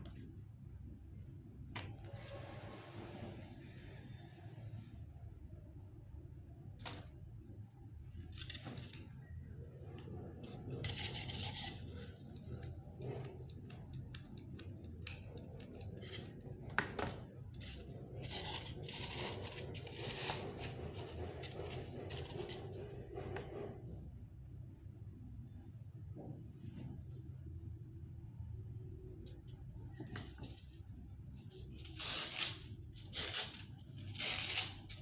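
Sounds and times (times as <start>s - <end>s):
low steady hum: 0.0s - 35.0s
rustling and scraping: 6.8s - 14.0s, 15.2s - 24.9s.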